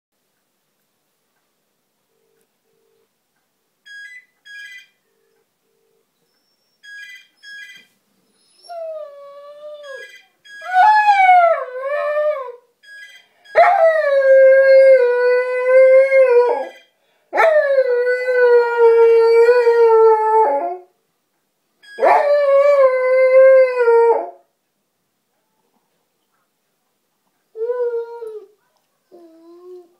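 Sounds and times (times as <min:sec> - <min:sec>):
phone ringing in paired beeps: 0:03.8 - 0:06.1, 0:06.8 - 0:07.9, 0:09.8 - 0:10.8, 0:12.8 - 0:13.6, 0:16.6 - 0:17.0, 0:21.8 - 0:22.1.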